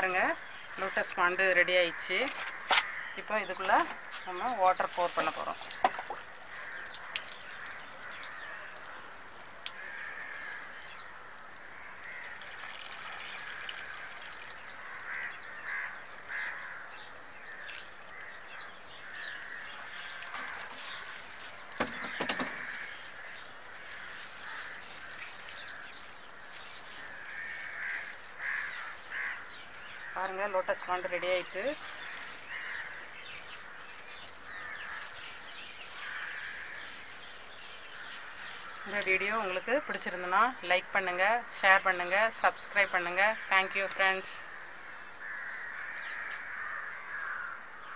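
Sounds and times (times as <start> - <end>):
crows cawing: 1.8 - 4.5, 5.1 - 13.9, 14.6 - 38.9, 44.5 - 47.9
water pouring from a bottle: 3.6 - 15.2, 19.1 - 40.1.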